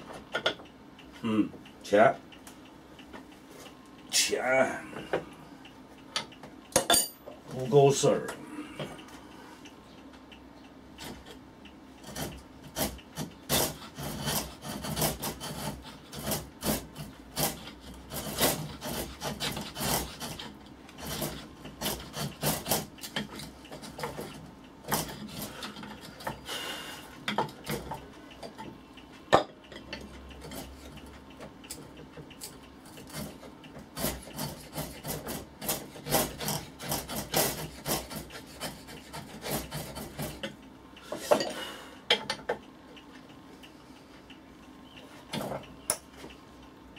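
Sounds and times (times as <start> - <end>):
file scraping on wood: 12.0 - 26.4, 32.4 - 40.6.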